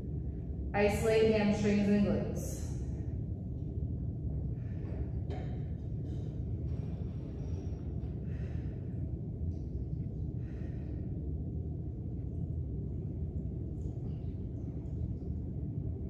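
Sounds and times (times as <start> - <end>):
steady low rumble: 0.0 - 16.0
person breathing hard: 6.6 - 9.3, 10.3 - 11.4.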